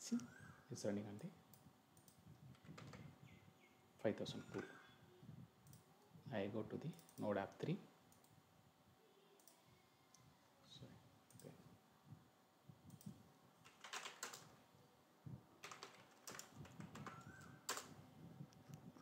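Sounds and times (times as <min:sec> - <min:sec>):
faint computer keyboard typing: 0:00.2 - 0:03.4, 0:06.8 - 0:08.4, 0:09.4 - 0:10.3, 0:11.3 - 0:11.6, 0:12.8 - 0:14.6, 0:15.6 - 0:19.0.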